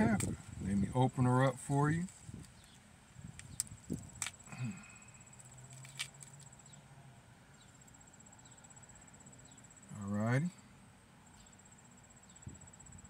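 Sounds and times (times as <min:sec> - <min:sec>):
pepper snapping and crackling: 0:03.3 - 0:04.9, 0:05.6 - 0:06.5.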